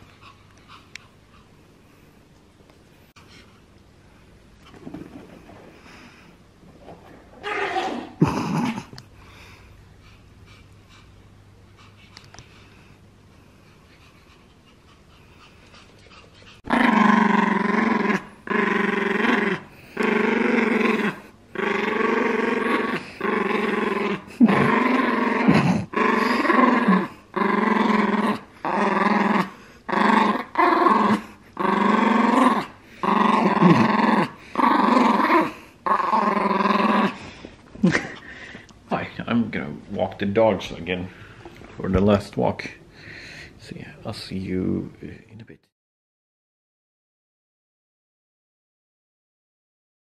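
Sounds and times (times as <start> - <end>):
small dog growling: 6.9 - 9.0, 15.4 - 38.6.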